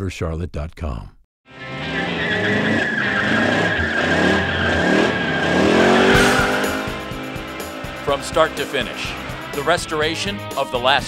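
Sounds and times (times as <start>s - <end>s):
high tyre squeal: 1.6s - 9.6s
car engine revving hard: 1.6s - 9.7s.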